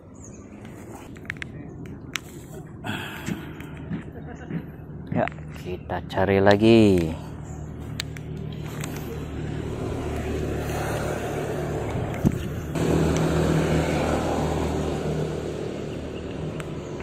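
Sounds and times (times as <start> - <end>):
engine running: 7.3 - 17.0.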